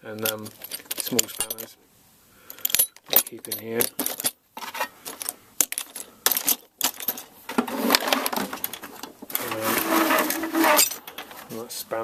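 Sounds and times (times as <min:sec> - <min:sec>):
tools rattling in metal toolbox: 0:00.0 - 0:01.8, 0:02.5 - 0:11.5.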